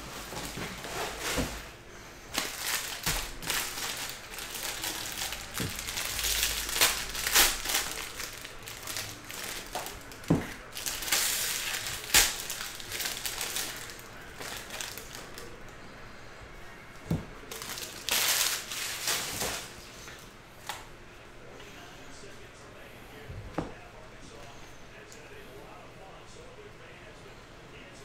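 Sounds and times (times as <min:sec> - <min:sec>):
foil wrapper crinkling and tearing: 0:02.3 - 0:15.5, 0:17.5 - 0:19.8.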